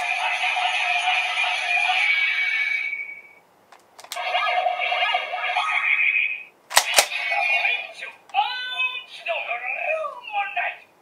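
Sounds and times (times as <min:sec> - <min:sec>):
plastic clicks: 0:03.7 - 0:04.2
toy gun electronic sound effects: 0:04.1 - 0:08.0.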